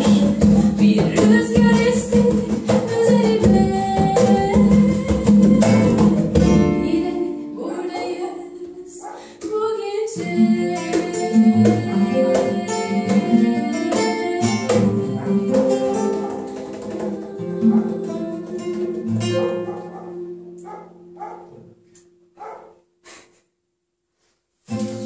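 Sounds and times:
hand drum strikes: 0.0s - 7.0s, 10.7s - 19.8s
acoustic guitar strumming: 0.0s - 9.5s, 10.2s - 22.9s, 24.7s - 25.0s.

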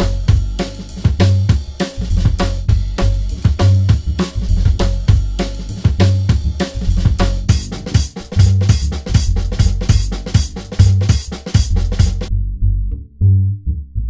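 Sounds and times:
drum kit beat: 0.0s - 12.3s
bass line: 0.0s - 14.0s.

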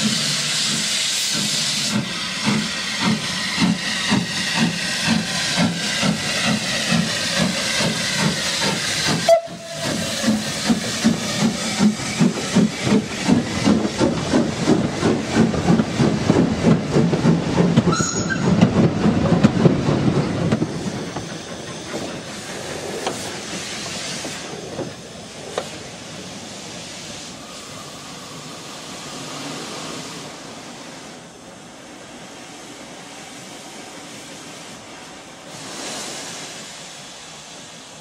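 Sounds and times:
steam locomotive chuffing: 0.0s - 38.0s
train rumble: 0.0s - 38.0s
high squeak: 17.9s - 18.5s.

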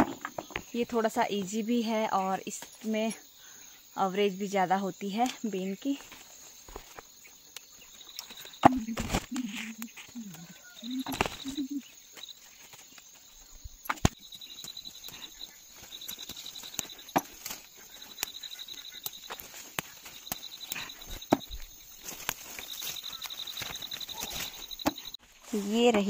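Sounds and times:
insect trilling: 0.0s - 26.0s
leaves rustling: 5.2s - 26.0s
bean pods snapping: 6.0s - 11.8s, 13.5s - 25.1s.

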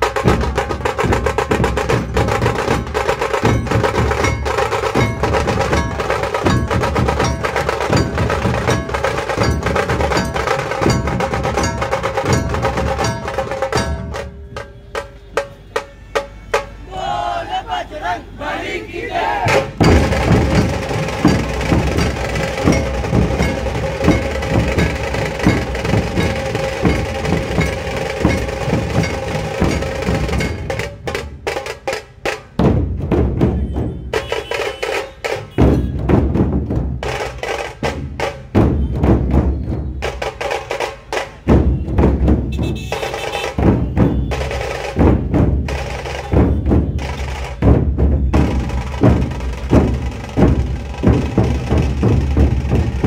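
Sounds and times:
sharp rapid drum strokes: 0.0s - 16.8s, 19.4s - 53.0s
deep drum beats: 0.0s - 17.3s, 19.3s - 53.0s.

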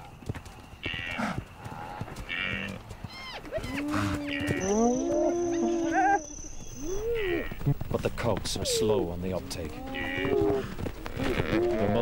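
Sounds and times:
wildebeest bellowing and moaning: 2.3s - 6.2s, 6.8s - 7.7s, 8.5s - 12.0s.

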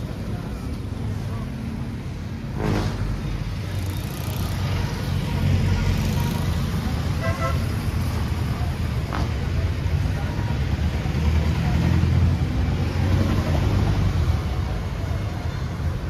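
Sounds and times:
passing vehicle engines rumble: 0.0s - 16.0s
car horn toot: 7.2s - 7.7s.

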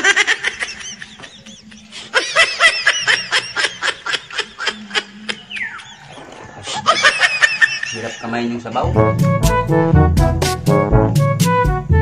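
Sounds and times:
man laughing: 0.0s - 8.8s.

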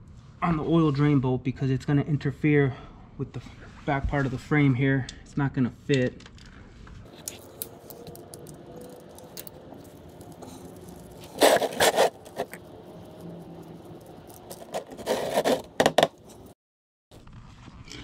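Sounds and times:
metal scraping: 7.1s - 16.6s.

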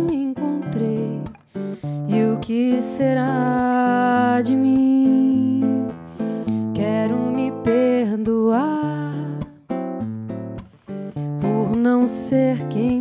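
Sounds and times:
woman singing: 0.0s - 9.8s, 11.2s - 13.0s
acoustic guitar: 0.0s - 13.0s.

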